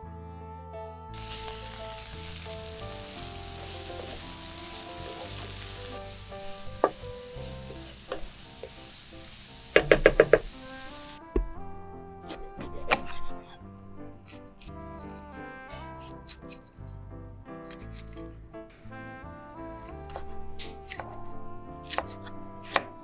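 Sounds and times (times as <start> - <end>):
spatula scraping a pan: 1.2 - 11.2
vegetables sizzling in hot oil: 1.2 - 11.2
spatula knocking against a pan: 9.8 - 10.5.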